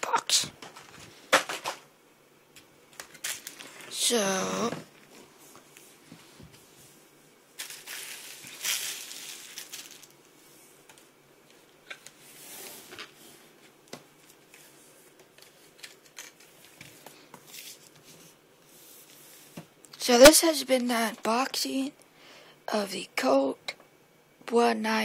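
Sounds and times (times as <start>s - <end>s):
cardboard and paper rustling: 0.6s - 1.8s, 7.6s - 10.1s.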